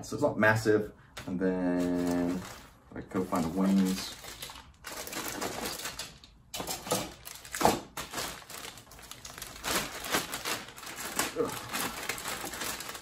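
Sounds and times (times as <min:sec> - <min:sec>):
plastic bags crinkling: 0:01.7 - 0:13.0.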